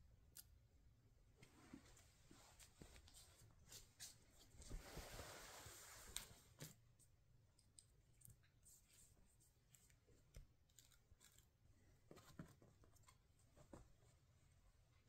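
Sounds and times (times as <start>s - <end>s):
faint clicks and soft taps: 6.1s - 11.4s.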